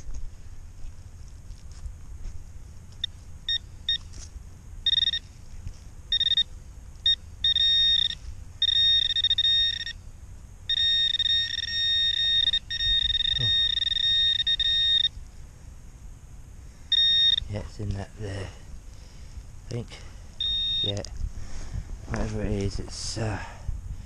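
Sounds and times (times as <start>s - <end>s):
metal detector pinpointer beeping: 3.0s - 4.2s, 4.8s - 5.3s, 6.1s - 10.0s, 10.7s - 15.2s, 16.9s - 17.5s, 20.4s - 21.1s.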